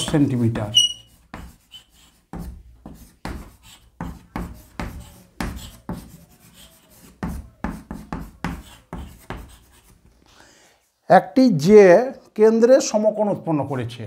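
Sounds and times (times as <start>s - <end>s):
pen writing strokes: 0.0s - 10.1s.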